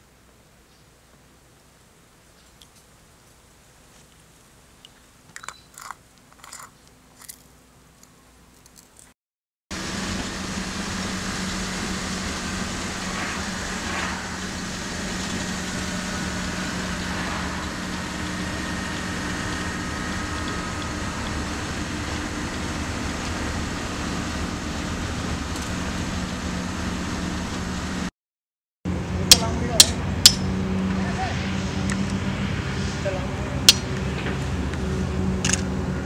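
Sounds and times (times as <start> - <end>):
bus engine drone: 9.7 - 28.1, 28.9 - 36.0
road noise: 9.7 - 28.1, 28.9 - 36.0.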